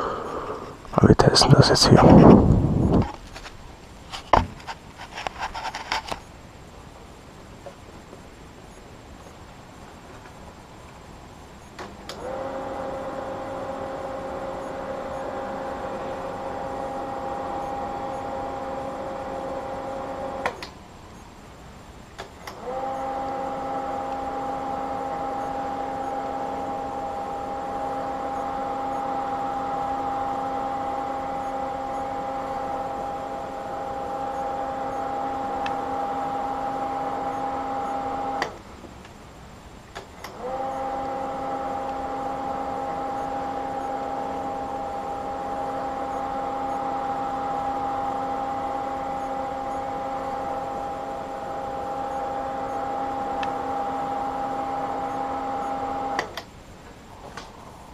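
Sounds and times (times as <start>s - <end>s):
cooling fan humming: 0.0s - 57.9s.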